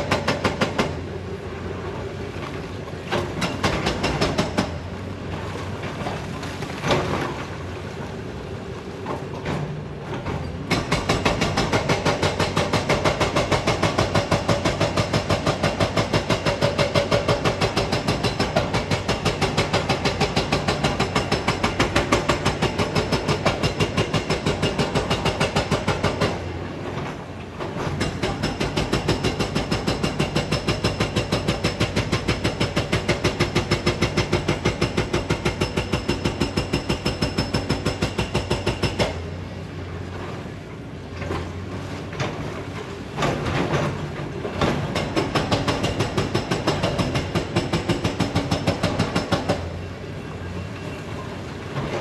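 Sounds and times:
hydraulic breaker hammering rock: 0.0 - 1.0, 3.1 - 4.8, 10.7 - 26.5, 27.8 - 39.4, 44.6 - 49.8.

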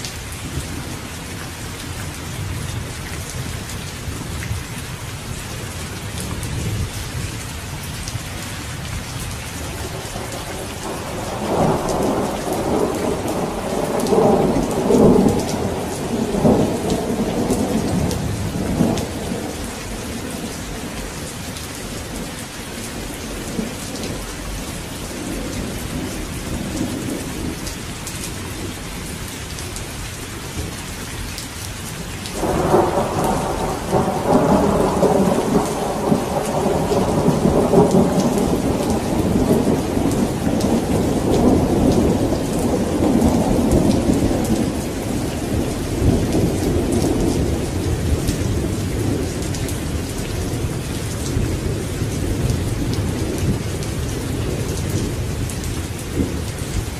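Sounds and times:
steady rainfall: 0.0 - 56.9
rolling thunder: 9.8 - 27.7, 32.4 - 56.9.

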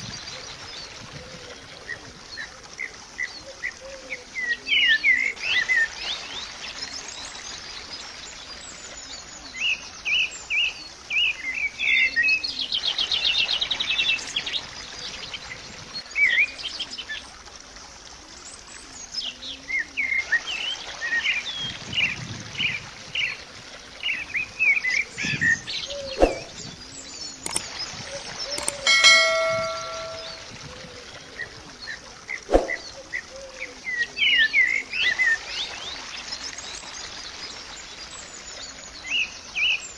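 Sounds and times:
sharp clicks: 27.5 - 27.7, 28.6 - 28.9
bird trill: 28.5 - 30.5
brief ringing tone: 28.6 - 30.5.

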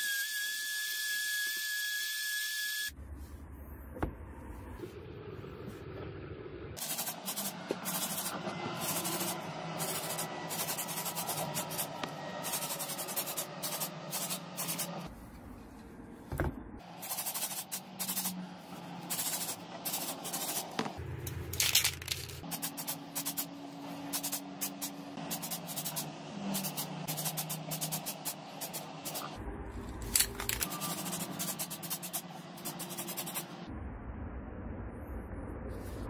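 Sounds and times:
aerosol spray can hissing: 17.0 - 18.4, 24.1 - 29.3.

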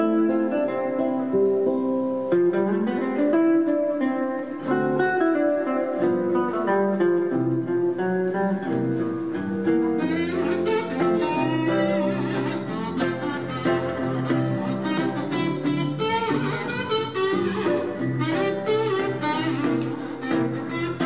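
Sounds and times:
acoustic guitar solo: 0.0 - 21.0
plucked string accompaniment: 0.0 - 21.0
kazoo melody: 9.9 - 21.0.

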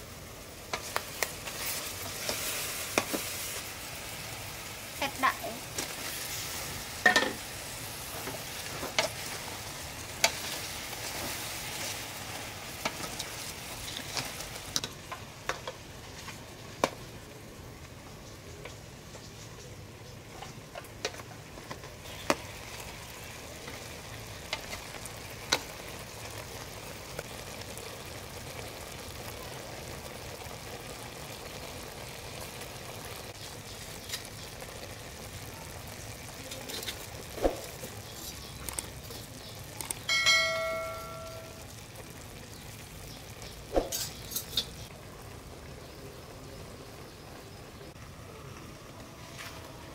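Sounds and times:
braising liquid bubbling: 20.2 - 49.1.

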